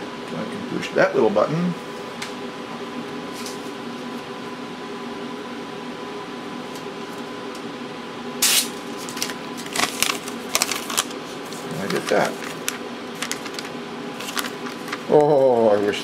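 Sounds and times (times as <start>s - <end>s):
equipment hum: 0.0s - 16.0s
paper tearing: 8.4s - 15.2s
paper crackling and rustling: 8.4s - 16.0s.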